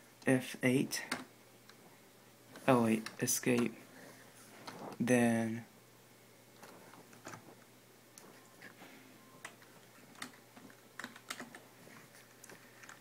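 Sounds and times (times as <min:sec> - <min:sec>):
computer keyboard clicks: 0:09.4 - 0:11.6.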